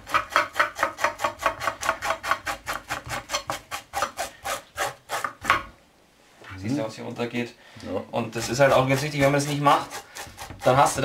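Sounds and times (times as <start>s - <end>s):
knife scraping fish scales: 8.4s - 11.0s.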